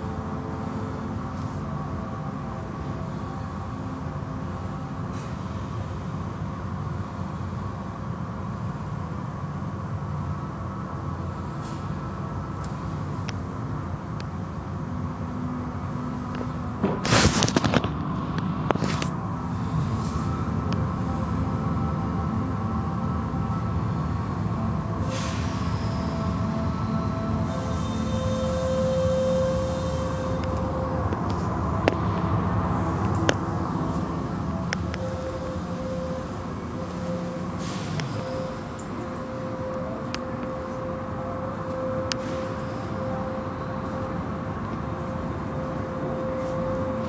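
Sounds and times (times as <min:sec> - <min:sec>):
car wash machinery rumbling: 0:00.0 - 0:47.0
hum: 0:00.0 - 0:47.0.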